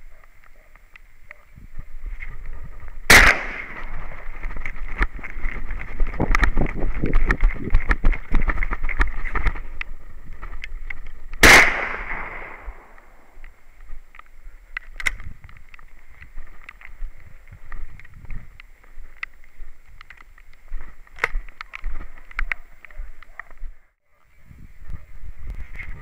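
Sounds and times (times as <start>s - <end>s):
close gunshot: 3.1s - 3.9s, 11.4s - 13.3s.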